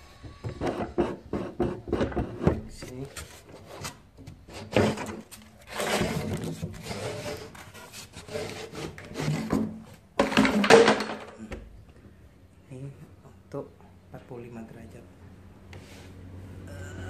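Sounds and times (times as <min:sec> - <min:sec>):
wood and metal scraping and knocking: 0:00.2 - 0:11.4.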